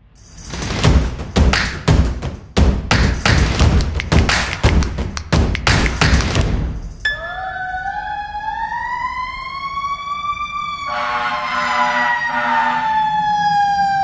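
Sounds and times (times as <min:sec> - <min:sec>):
fire truck siren wailing: 0:07.1 - 0:14.0
horn blast: 0:10.9 - 0:13.0.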